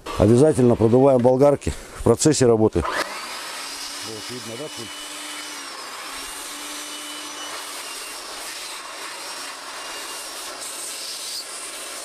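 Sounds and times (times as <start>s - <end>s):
electric air blower running: 2.8s - 12.0s.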